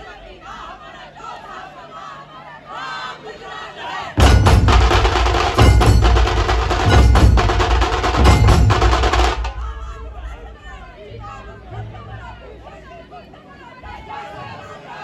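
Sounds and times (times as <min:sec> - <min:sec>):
drum troupe playing: 0:04.2 - 0:12.6.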